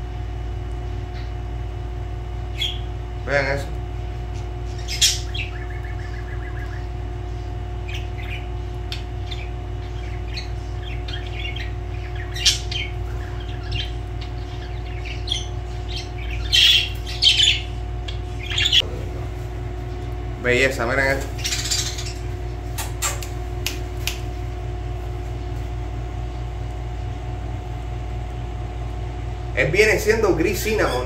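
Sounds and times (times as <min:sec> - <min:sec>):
steady low hum: 0:00.0 - 0:31.0
budgerigars chirping: 0:02.5 - 0:02.9, 0:04.3 - 0:18.8, 0:20.5 - 0:23.3.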